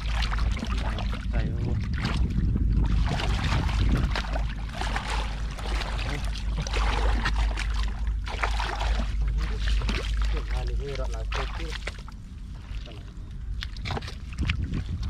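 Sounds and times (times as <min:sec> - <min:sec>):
low rumble: 0:00.0 - 0:15.0
shallow water splashing: 0:00.0 - 0:15.0.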